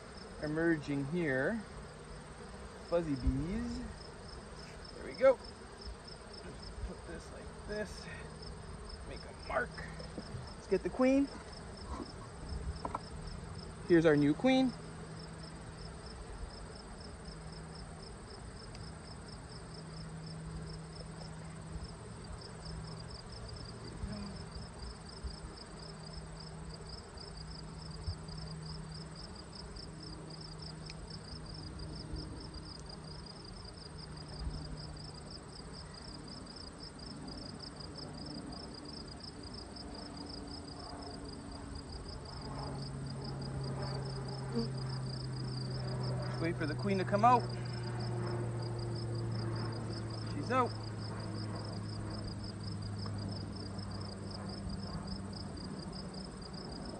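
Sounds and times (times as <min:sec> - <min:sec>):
honey bees buzzing: 0:00.0 - 0:56.9
insect high trill: 0:22.6 - 0:56.9.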